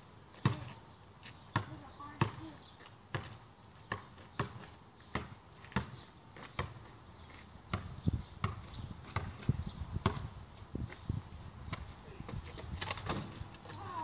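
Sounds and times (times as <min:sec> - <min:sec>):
basketball bouncing: 0:01.5 - 0:02.5, 0:03.1 - 0:06.8, 0:07.7 - 0:10.3.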